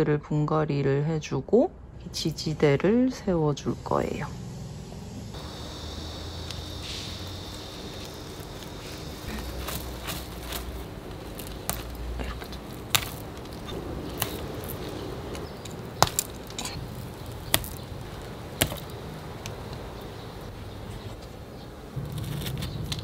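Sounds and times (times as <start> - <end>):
clay pebbles clicking in a pot: 8.0 - 20.2.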